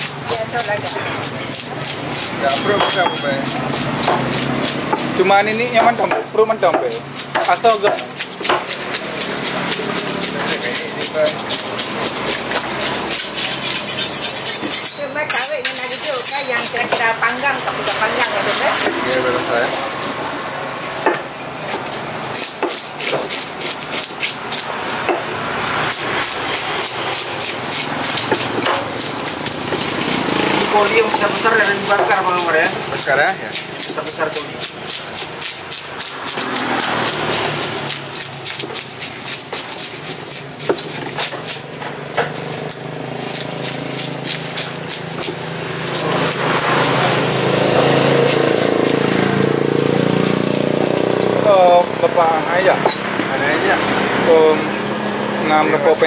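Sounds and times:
knife slicing fish: 0.0 - 19.2, 21.1 - 51.9
knife knocking on wooden block: 21.0 - 21.3.

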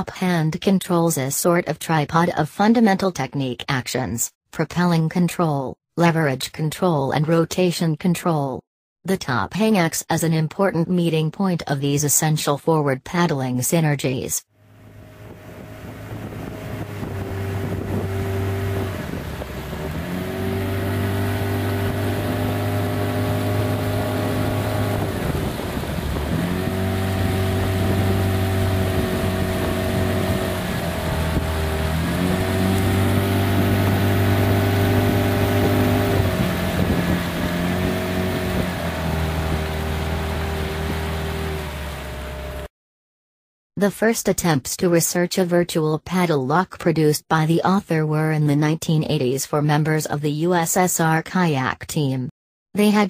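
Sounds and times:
motorboat engine running: 14.6 - 42.7
wind and water hiss: 14.7 - 42.6.

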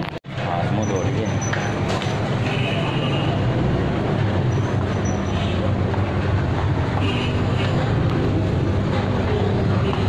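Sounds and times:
engine traffic rumble: 0.0 - 10.0.

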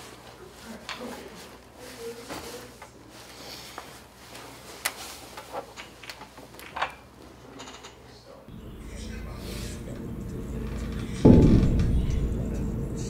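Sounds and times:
rummaging through a backpack: 0.0 - 6.8.

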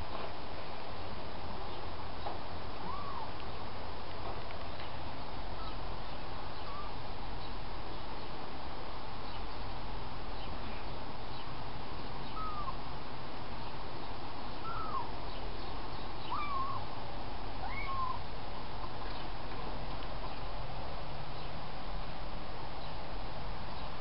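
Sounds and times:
steady background hiss: 0.0 - 24.0
kitten mewing: 2.8 - 3.3, 12.4 - 12.8, 17.6 - 18.2.

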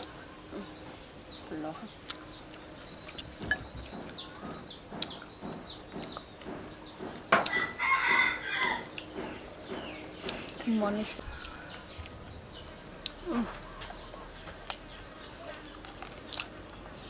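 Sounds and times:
small birds chirping: 0.0 - 17.0
rooster crowing: 7.5 - 8.9.

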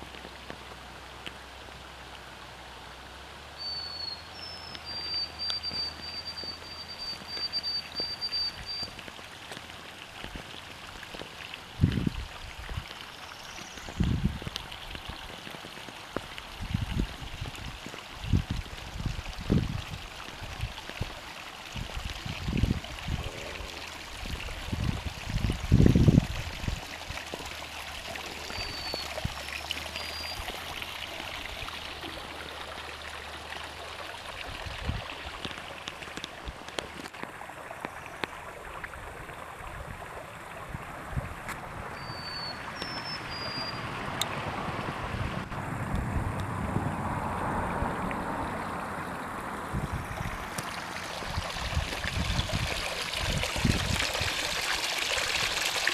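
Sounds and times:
wind buffeting microphone: 11.7 - 12.9, 13.8 - 15.2, 16.5 - 21.2, 21.8 - 27.2, 34.5 - 35.4, 43.8 - 54.5.

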